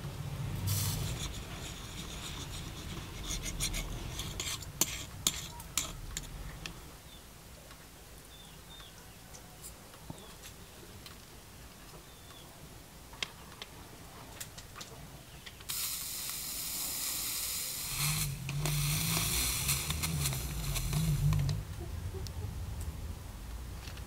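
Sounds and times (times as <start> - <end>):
gas torch flame hissing: 0.6 - 6.4, 15.6 - 21.6
low flame rumble: 17.6 - 23.8.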